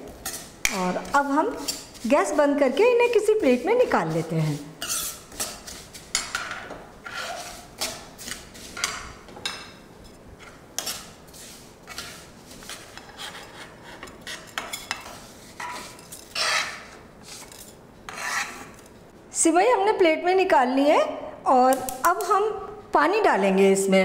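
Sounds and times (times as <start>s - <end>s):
spoon and tongs scraping metal pan: 0.2s - 9.6s, 10.4s - 18.9s.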